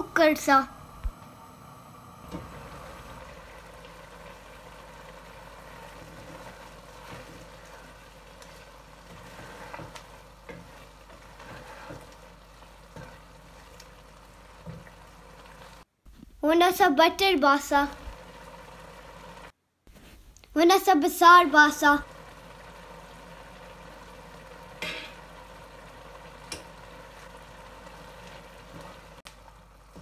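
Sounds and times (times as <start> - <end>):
wooden spoon stirring: 2.3 - 16.2
meat sizzling in a pan: 2.5 - 15.9, 17.5 - 19.5, 21.6 - 30.0.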